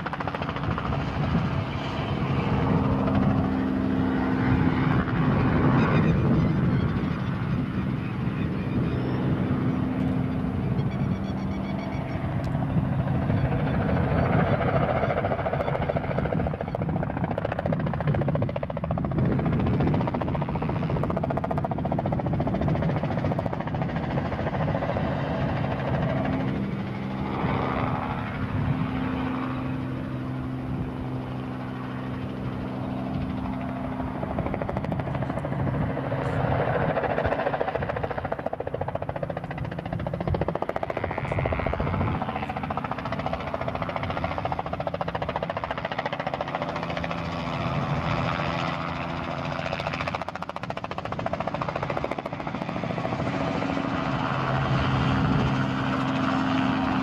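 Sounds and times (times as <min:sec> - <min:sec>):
helicopter engine and rotor: 0:00.0 - 0:57.0.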